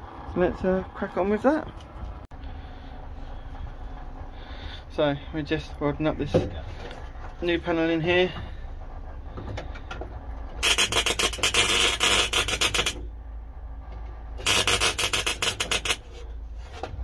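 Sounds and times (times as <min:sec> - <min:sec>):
welder arc crackling: 0:10.6 - 0:13.0, 0:14.4 - 0:16.1.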